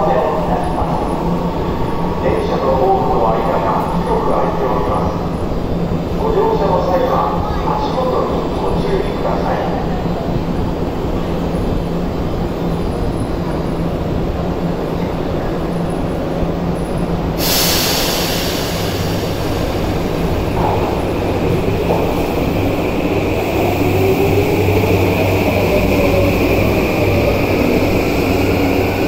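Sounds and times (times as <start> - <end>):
steady train rumble: 0.0 - 29.0
train running alongside platform: 0.0 - 29.0
sudden hiss: 17.3 - 22.2.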